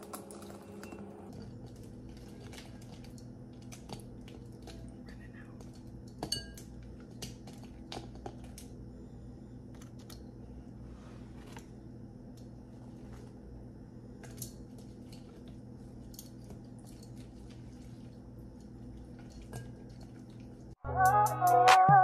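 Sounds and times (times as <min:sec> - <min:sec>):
steady low hum: 0:00.0 - 0:20.8
loud music: 0:20.8 - 0:22.0.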